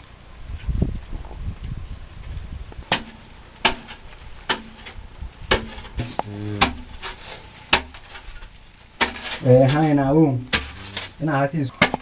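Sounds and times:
sharp knocks: 0:02.9 - 0:04.9, 0:05.5 - 0:06.9, 0:10.5 - 0:11.2.

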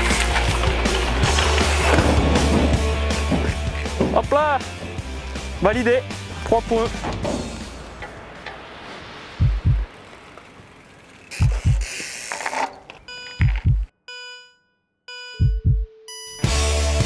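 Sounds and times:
rushing noise: 0:06.5 - 0:11.8
heartbeat double thumps: 0:09.4 - 0:09.9, 0:11.4 - 0:11.9, 0:13.4 - 0:13.9, 0:15.3 - 0:16.0.

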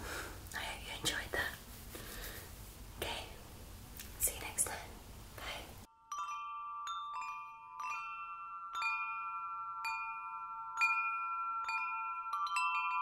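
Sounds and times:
chimes ringing: 0:05.9 - 0:13.0.

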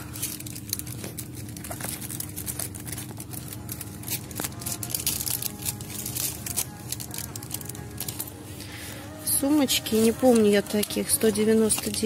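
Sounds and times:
cellophane crinkling: 0:00.0 - 0:12.0
steady low hum: 0:00.0 - 0:12.0.

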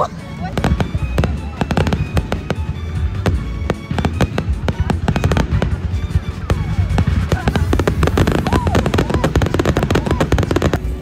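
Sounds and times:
fireworks bangs and crackles: 0:00.1 - 0:11.0.

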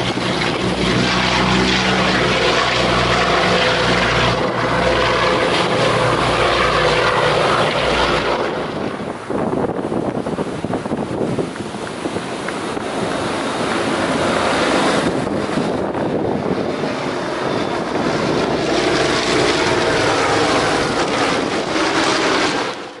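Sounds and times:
wind noise on microphone: 0:00.0 - 0:22.9
aircraft piston engines droning: 0:00.0 - 0:23.0.

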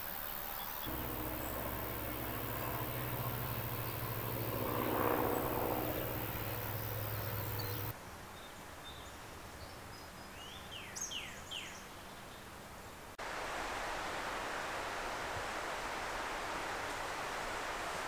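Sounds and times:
small bird chirping: 0:00.6 - 0:07.9
low hum: 0:00.9 - 0:07.9
rushing noise: 0:00.9 - 0:07.9.

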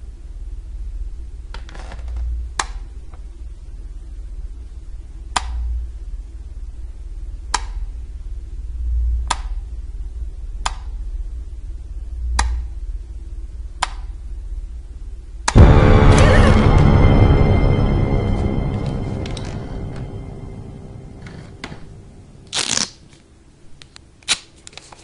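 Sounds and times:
loud music: 0:15.5 - 0:22.7
low rumble: 0:15.5 - 0:22.8.

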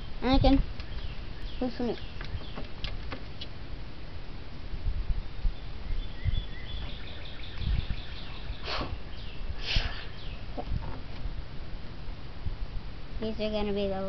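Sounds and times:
birds chirping: 0:00.0 - 0:03.8, 0:05.1 - 0:11.8
wind rumble on microphone: 0:00.0 - 0:14.0.

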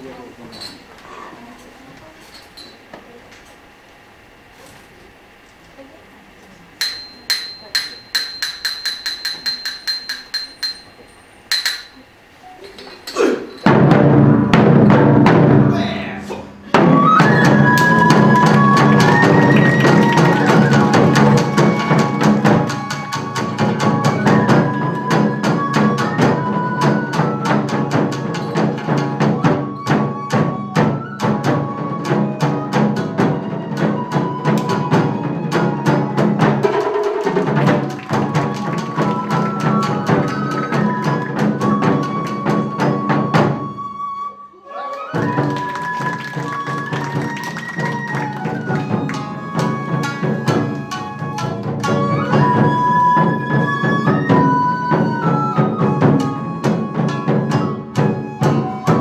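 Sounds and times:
taiko drums: 0:13.6 - 0:44.2, 0:45.1 - 0:59.0
bamboo flute melody: 0:13.7 - 0:59.0
shamisen: 0:16.7 - 0:59.0.

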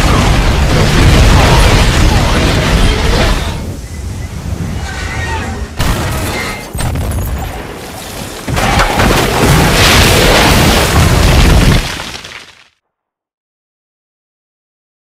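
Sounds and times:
explosion blast rumbling: 0:00.0 - 0:12.2.

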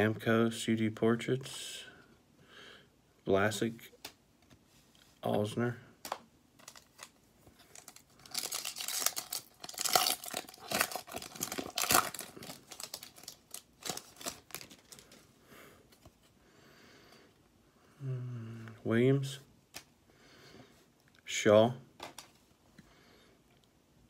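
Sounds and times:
cards rustling and clicking: 0:06.0 - 0:15.3, 0:22.0 - 0:22.5
foil wrapper tearing and crinkling: 0:06.6 - 0:15.2.

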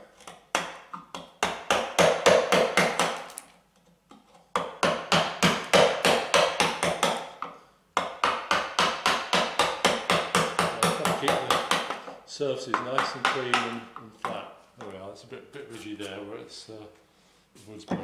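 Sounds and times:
wooden mallet striking chisel: 0:00.2 - 0:03.4, 0:04.2 - 0:14.9.

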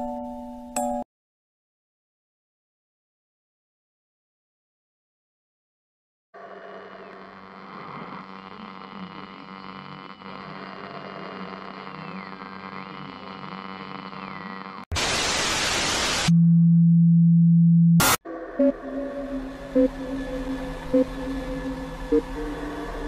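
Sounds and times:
loud static hiss: 0:07.4 - 0:16.3
loud steady low hum: 0:16.3 - 0:23.0
eerie droning music: 0:18.2 - 0:23.0
wavering high tone: 0:18.3 - 0:23.0.

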